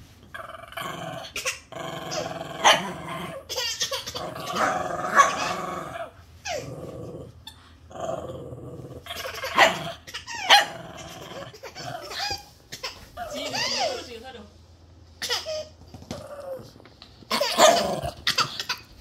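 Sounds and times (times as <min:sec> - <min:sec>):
small dog growling: 0:00.3 - 0:03.5, 0:04.2 - 0:12.4, 0:16.0 - 0:18.5
dog barking: 0:09.5 - 0:10.8.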